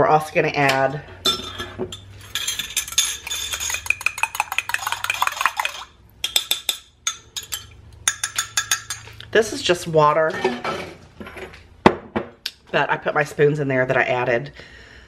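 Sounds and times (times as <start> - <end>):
spoons clinking against glass: 1.3 - 9.2.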